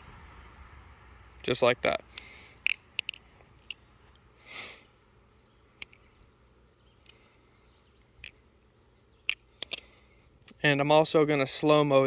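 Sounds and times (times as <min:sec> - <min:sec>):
breathy rush of noise: 0:00.0 - 0:05.2
butterfly knife clicking: 0:02.1 - 0:03.8, 0:05.8 - 0:06.1.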